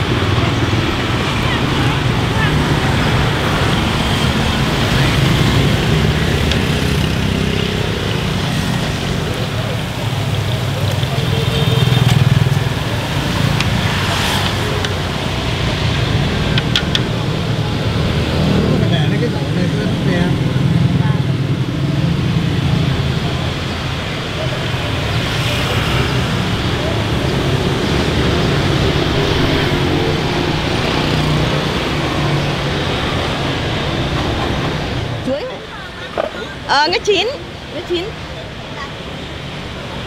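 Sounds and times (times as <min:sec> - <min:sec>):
motorbike traffic passing: 0:00.0 - 0:40.0.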